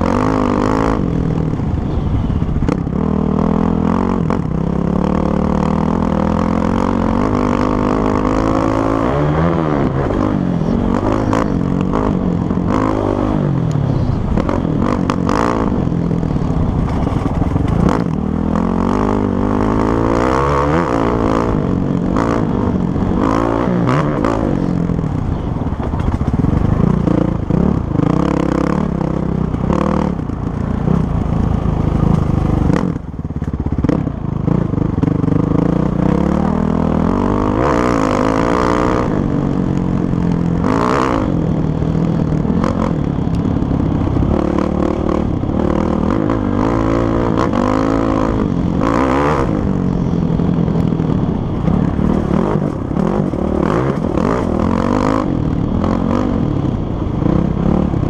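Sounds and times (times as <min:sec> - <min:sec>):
dirt bike engine revving: 0:00.0 - 0:25.4, 0:26.2 - 0:33.1, 0:33.7 - 0:58.0.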